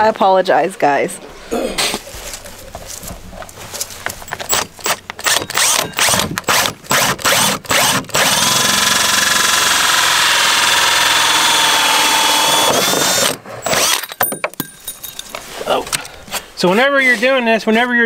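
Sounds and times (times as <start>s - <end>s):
drill cutting through plastic: 4.5s - 14.1s.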